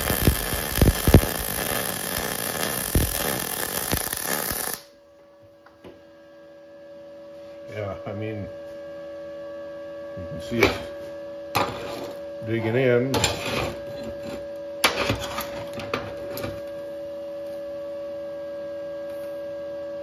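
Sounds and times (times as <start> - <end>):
welding arc crackling and popping: 0.0 - 4.9
quiet steady hum: 0.0 - 6.0.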